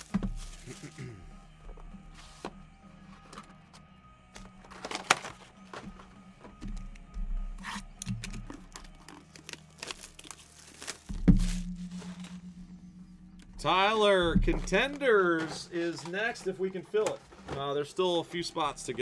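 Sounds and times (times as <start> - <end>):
cellophane wrap crinkling: 0.0 - 1.1, 7.6 - 12.4.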